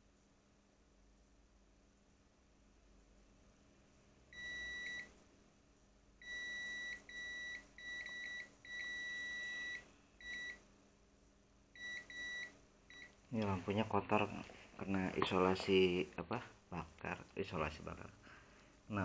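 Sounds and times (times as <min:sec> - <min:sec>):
multimeter high-pitched beep: 0:04.4 - 0:05.1, 0:06.2 - 0:10.6, 0:11.8 - 0:13.1.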